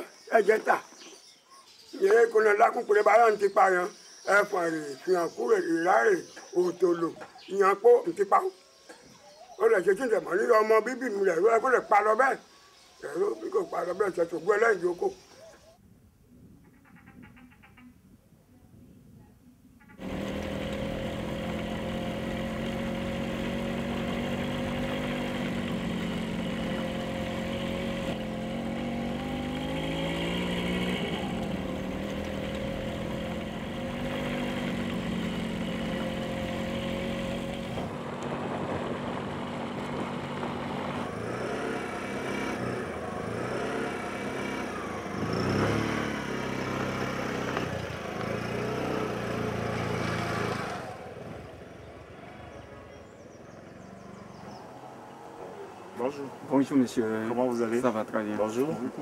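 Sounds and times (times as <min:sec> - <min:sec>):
small motorcycle engine revving: 0:19.9 - 0:56.6.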